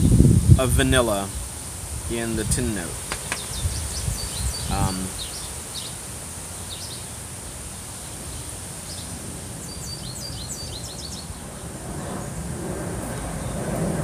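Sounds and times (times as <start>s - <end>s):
steady background hiss: 0.0s - 14.0s
small birds chirping: 2.1s - 12.3s
airplane rumble: 11.2s - 14.0s.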